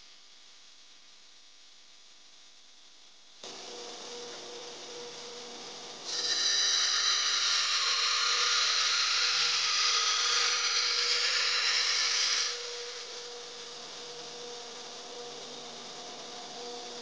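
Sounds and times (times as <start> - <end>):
grinder running freely: 3.4 - 14.0
belt grinder grinding steel: 6.0 - 13.2.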